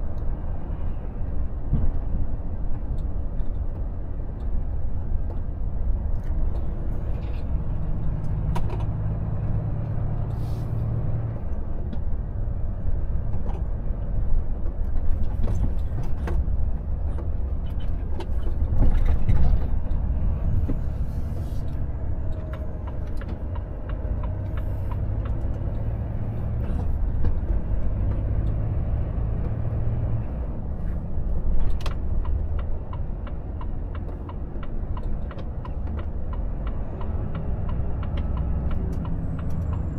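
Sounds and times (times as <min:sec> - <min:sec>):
road noise: 0:00.0 - 0:39.9
truck diesel engine droning: 0:05.7 - 0:14.6, 0:18.3 - 0:39.9.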